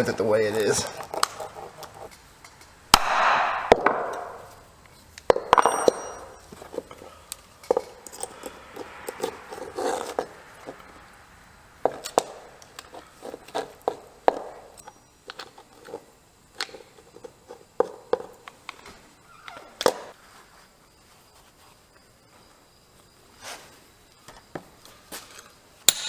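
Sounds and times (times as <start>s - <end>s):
hammer striking steel punch: 2.9s - 4.5s
high metallic ringing clang: 5.5s - 6.5s
pliers clicking and scraping: 5.9s - 10.9s.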